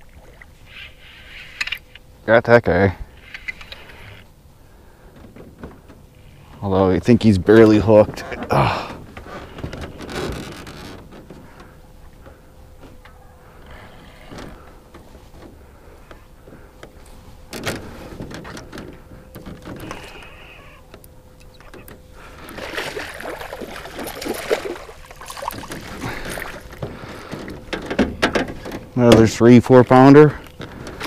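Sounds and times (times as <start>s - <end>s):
fish splashing in water: 22.4s - 26.8s.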